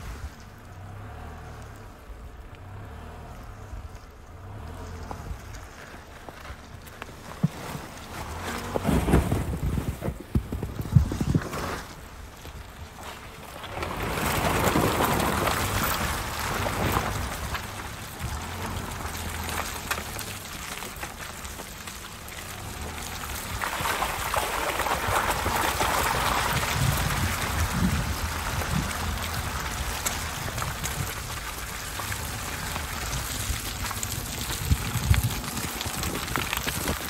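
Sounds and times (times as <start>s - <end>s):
low engine rumble: 0.0s - 37.0s
wheels splashing through mud: 0.0s - 37.0s.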